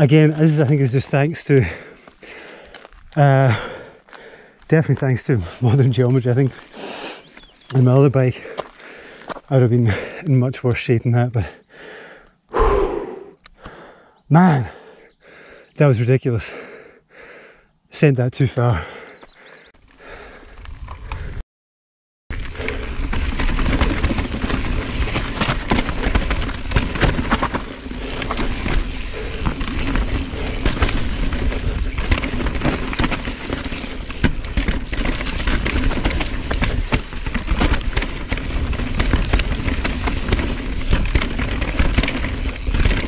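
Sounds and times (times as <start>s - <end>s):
wind rumbling on microphone: 22.4s - 43.0s
bike clattering over rocks: 22.9s - 43.0s.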